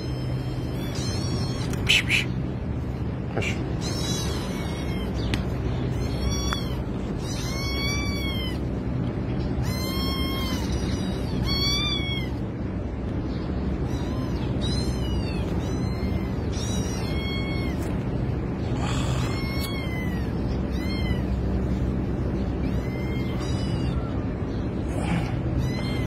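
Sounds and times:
kitten meowing: 0.0 - 2.4, 3.6 - 8.8, 9.6 - 12.4, 13.8 - 18.2, 18.8 - 21.4, 22.5 - 24.2, 25.6 - 26.0.

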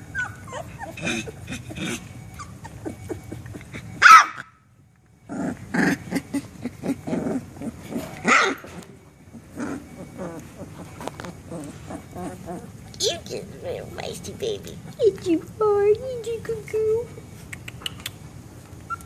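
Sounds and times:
puppy growling: 0.0 - 4.0, 5.2 - 15.6
puppy whining: 0.0 - 4.5, 5.2 - 15.6, 16.9 - 19.0
puppy barking: 0.2 - 4.6, 8.2 - 8.8.

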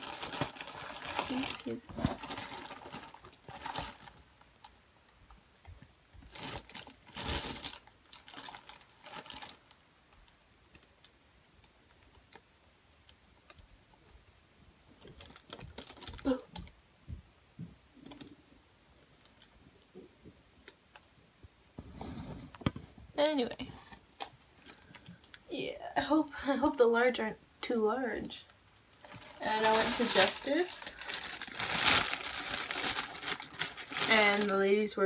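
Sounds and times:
shopping bag rustling: 0.0 - 4.2, 6.3 - 9.6, 29.0 - 35.0.

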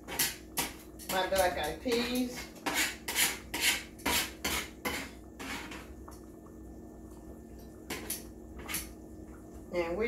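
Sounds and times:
spoon scraping in a pot: 0.0 - 5.9, 7.9 - 8.9.

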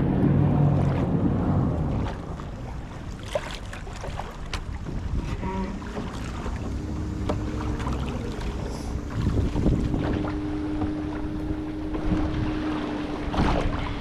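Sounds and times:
knocks and splashes: 0.0 - 14.0
low hum: 0.0 - 14.0
water sloshing around kayak: 0.0 - 14.0
wind buffeting microphone: 3.8 - 14.0.

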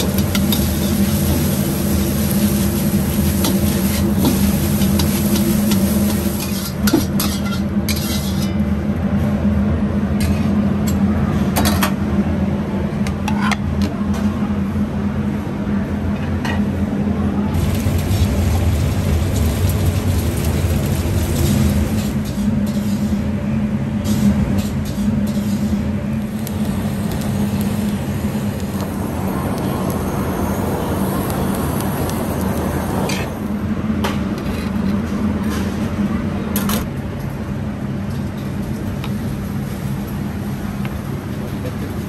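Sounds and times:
low machine drone: 16.9 - 37.0.

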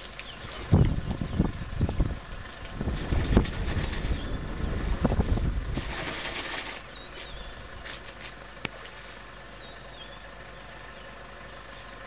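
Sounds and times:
splashing water: 0.0 - 9.2
elephant drinking from stream: 0.0 - 12.0.

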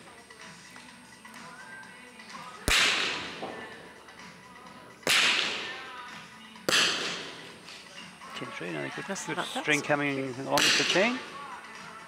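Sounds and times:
rifle shots echoing: 2.7 - 3.5, 5.0 - 5.8, 6.7 - 7.5, 10.6 - 11.0.

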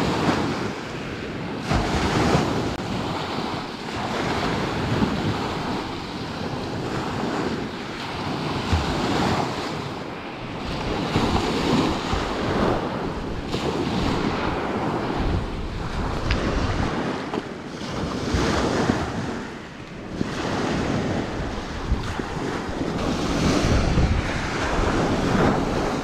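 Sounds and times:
waves washing onto shore: 0.0 - 26.0
wind buffeting microphone: 0.0 - 26.0.

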